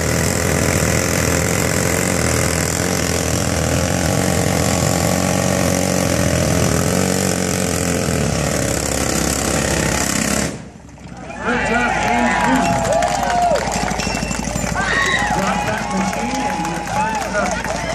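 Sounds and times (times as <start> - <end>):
rock drill hammering: 0.0 - 10.6.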